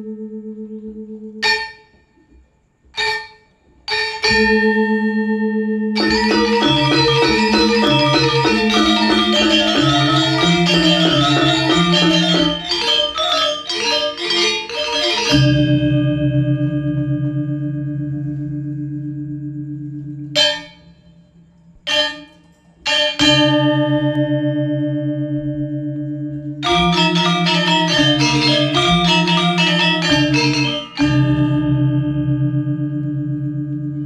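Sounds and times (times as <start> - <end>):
sudden gamelan unison strikes: 1.4 - 2.0, 6.0 - 34.0
gamelan unison chord ringing: 3.0 - 34.0
metallophones playing fast passage: 6.0 - 15.6, 26.6 - 31.6.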